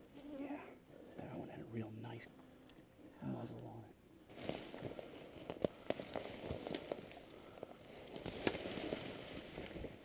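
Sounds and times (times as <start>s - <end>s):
leaves and brush rustling: 0.0s - 1.2s, 1.9s - 10.0s
twigs snapping: 4.3s - 10.0s.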